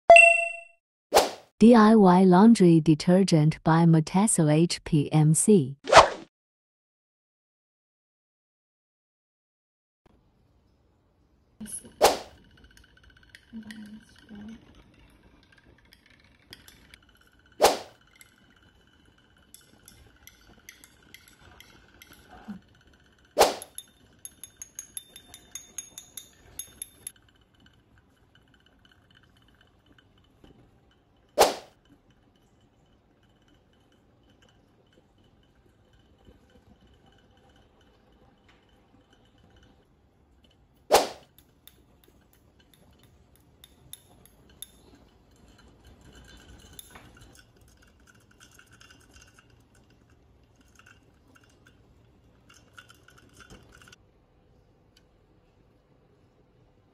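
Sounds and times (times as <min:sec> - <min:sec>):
glass clinking: 0:11.6 - 0:27.4, 0:41.3 - 0:51.8, 0:52.5 - 0:54.0.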